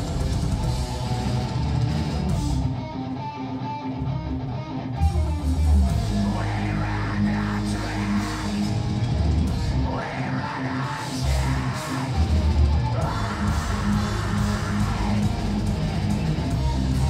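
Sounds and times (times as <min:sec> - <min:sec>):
drum kit: 0:00.0 - 0:02.8, 0:07.6 - 0:09.9, 0:11.0 - 0:17.0
metal band playing live: 0:00.0 - 0:17.0.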